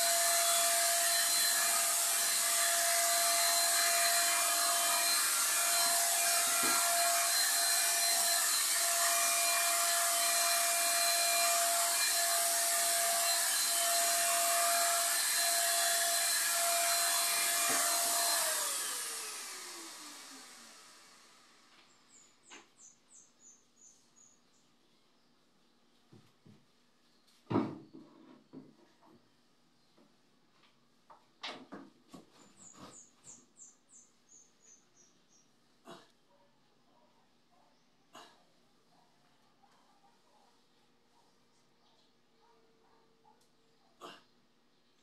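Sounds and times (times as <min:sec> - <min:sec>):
paint sprayer motor whining: 0:00.0 - 0:22.2.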